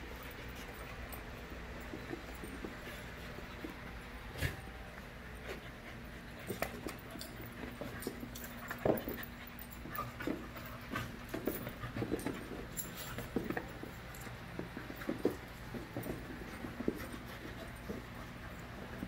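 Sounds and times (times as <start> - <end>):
puppies scuffling: 0.0 - 19.0
puppies panting: 5.1 - 19.0.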